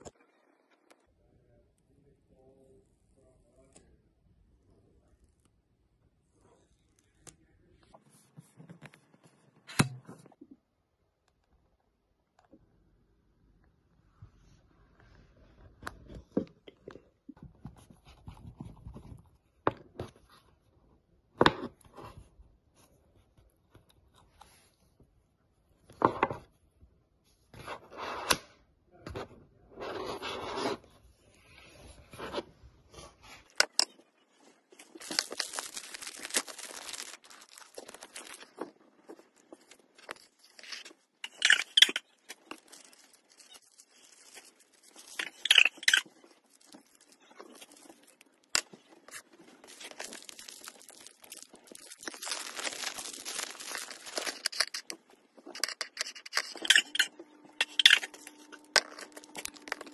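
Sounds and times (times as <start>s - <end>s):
rustling and scraping: 29.7s - 59.9s.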